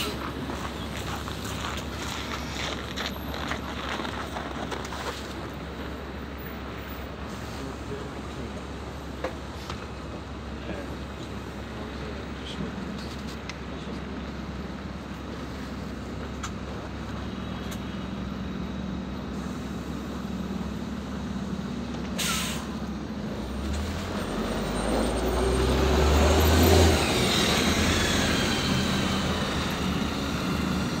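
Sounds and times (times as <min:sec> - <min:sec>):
bus engine: 0:00.0 - 0:31.0
air brakes hissing: 0:07.2 - 0:07.9, 0:19.3 - 0:20.1, 0:22.2 - 0:22.8.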